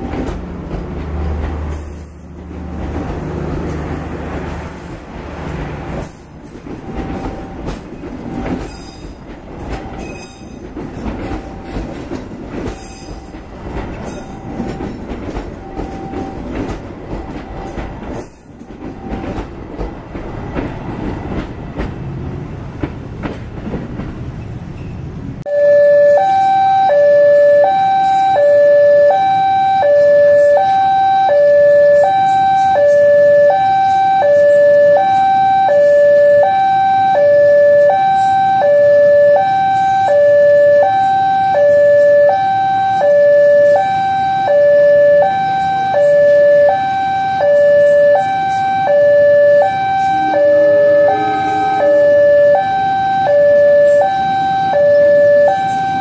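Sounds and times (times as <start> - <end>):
level-crossing two-tone alarm: 25.5 - 56.0.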